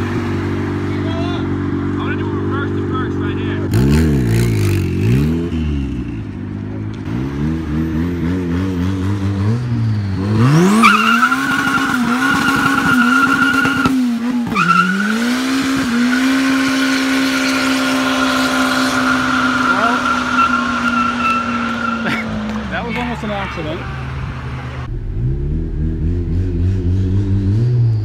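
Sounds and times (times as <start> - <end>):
car engine revving: 0.0 - 28.0
tires squealing: 9.1 - 24.9.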